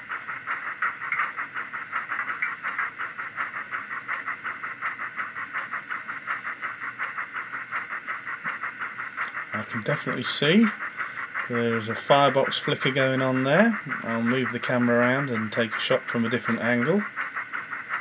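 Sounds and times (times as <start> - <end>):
steam locomotive chuffing: 0.0 - 18.0.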